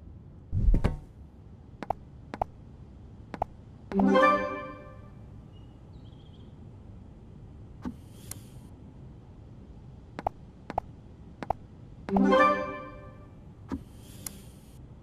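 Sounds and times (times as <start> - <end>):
low steady hum: 0.0 - 15.0
soft hiss: 7.8 - 9.9, 13.6 - 15.0.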